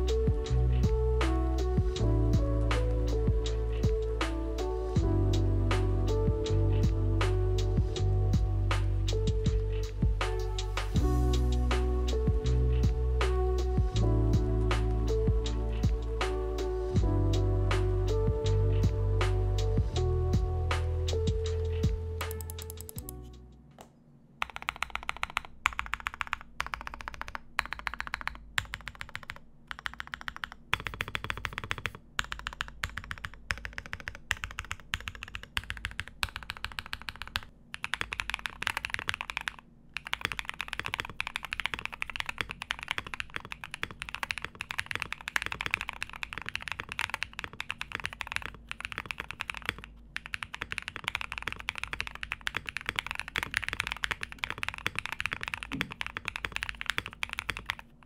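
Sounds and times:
mechanical keyboard typing: 22.2s - 23.3s, 24.4s - 58.0s.

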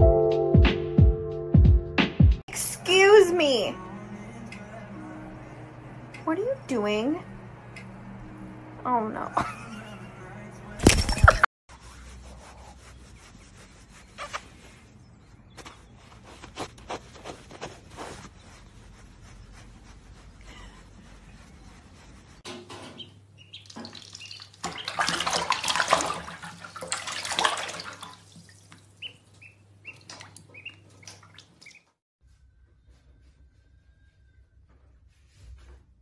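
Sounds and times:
hand rubbing fleece: 11.7s - 22.5s
duckling peeping: 23.0s - 25.0s, 29.0s - 31.9s
water running into sink: 23.7s - 28.9s.

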